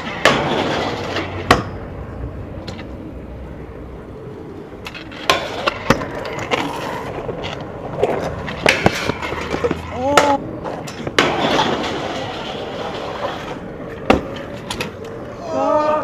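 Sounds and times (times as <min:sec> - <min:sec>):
small wheels rolling on pavement: 0:00.0 - 0:16.0
scooter grinding metal handrail: 0:04.9 - 0:15.0.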